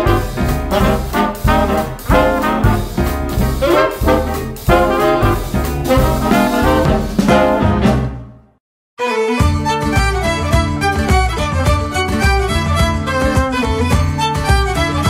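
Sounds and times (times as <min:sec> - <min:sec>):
jazzy swing music with brass: 0:00.0 - 0:08.6.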